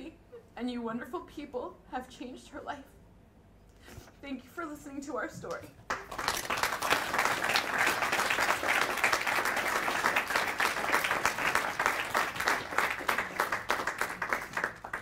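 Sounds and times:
audience applauding: 5.9 - 15.0.

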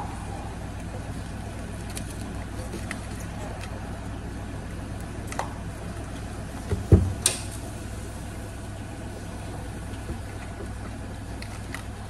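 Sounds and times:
kitchen hum: 0.0 - 12.0
dull thump: 6.7 - 7.3.

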